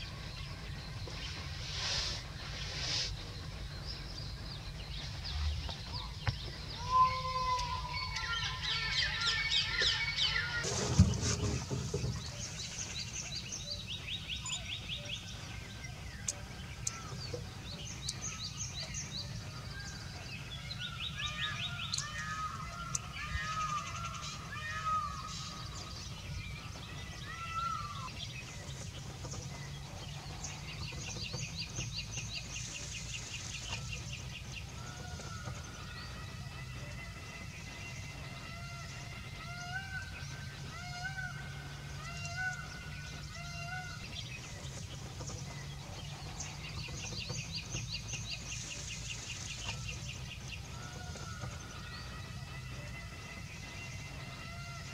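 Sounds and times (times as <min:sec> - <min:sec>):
steady low rumble: 0:00.0 - 0:07.0, 0:25.1 - 0:54.9
birds singing and chirping: 0:00.0 - 0:54.9.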